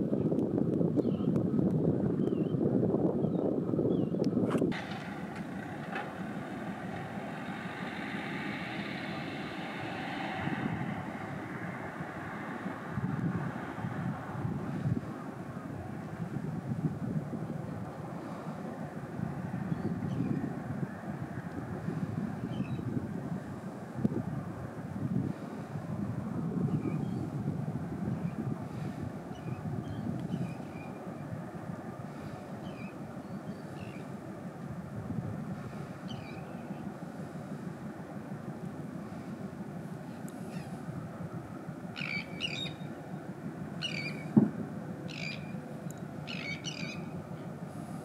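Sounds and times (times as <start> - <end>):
low rumbling noise: 2.9 - 48.0
birds calling: 41.9 - 43.0, 43.8 - 44.4, 45.1 - 47.6.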